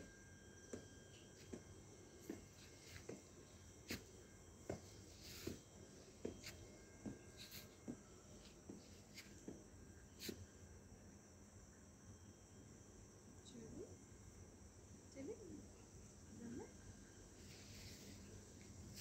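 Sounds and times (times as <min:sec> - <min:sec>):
night insects chirring: 0:00.0 - 0:19.0
footsteps on grass: 0:02.2 - 0:09.4.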